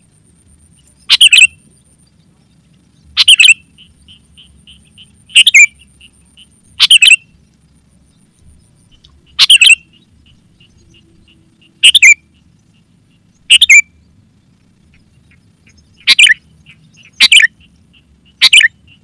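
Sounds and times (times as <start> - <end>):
soft bird chirps: 0.6 - 19.0
bird bubbling calls: 1.1 - 1.5, 3.2 - 7.2, 8.9 - 12.8, 13.4 - 13.9, 14.8 - 19.0.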